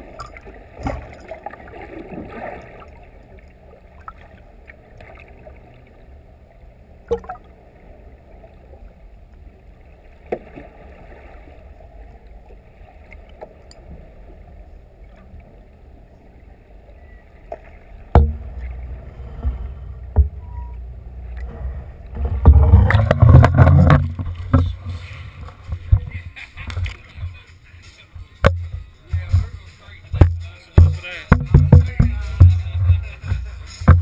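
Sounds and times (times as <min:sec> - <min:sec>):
muffled underwater rumble: 0:00.0 - 0:34.0
water rushing and splashing: 0:00.0 - 0:34.0
sharp knock: 0:30.2 - 0:33.0.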